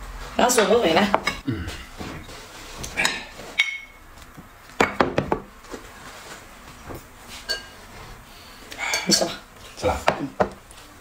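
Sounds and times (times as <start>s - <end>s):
chopsticks clinking on plates: 2.9s - 4.0s.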